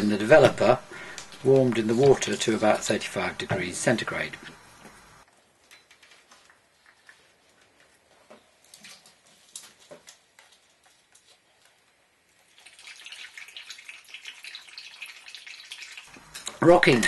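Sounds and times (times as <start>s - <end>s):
liquid pouring with splashing hiss: 12.3s - 16.2s.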